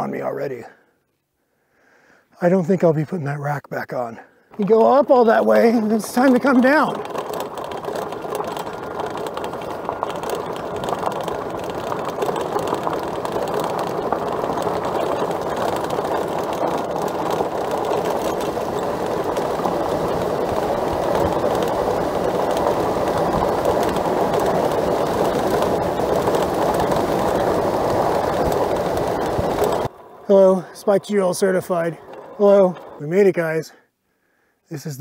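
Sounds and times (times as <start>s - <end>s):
tyres rumbling over dirt: 3.8s - 33.8s
bike rattling: 4.4s - 33.8s.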